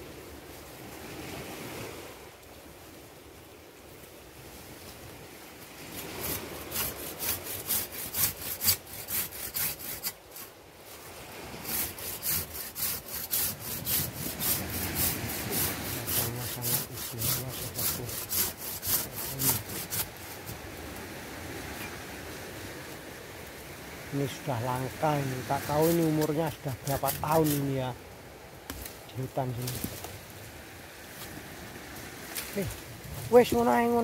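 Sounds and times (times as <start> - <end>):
hand saw cutting tree root: 5.9 - 10.5, 11.5 - 20.6, 24.6 - 27.9.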